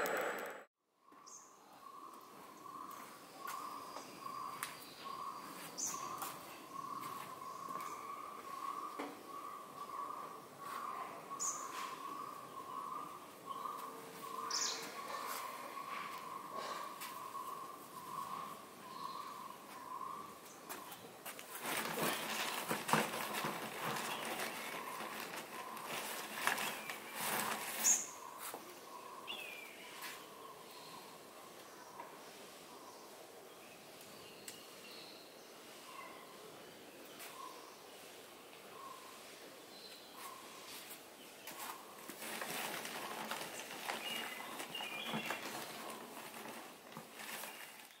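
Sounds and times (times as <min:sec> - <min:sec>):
bird chirping: 0:00.0 - 0:21.2, 0:43.2 - 0:46.4
rustles and clicks: 0:20.7 - 0:28.1, 0:40.9 - 0:48.0.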